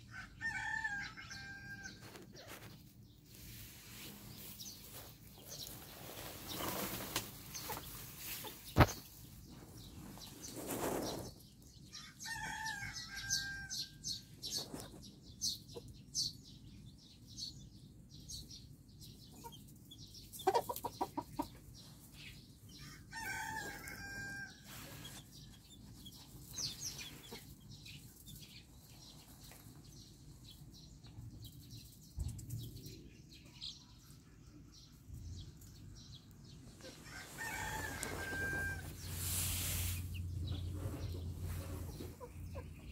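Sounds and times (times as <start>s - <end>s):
chickens clucking: 4.3s - 10.3s, 19.3s - 22.2s, 25.9s - 29.7s, 35.6s - 42.9s
chicks peeping: 4.3s - 11.8s, 13.1s - 42.9s.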